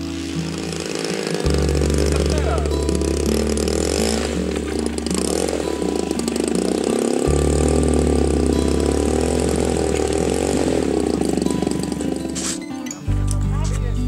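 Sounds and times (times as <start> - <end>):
model aircraft engine running: 0.0 - 12.4.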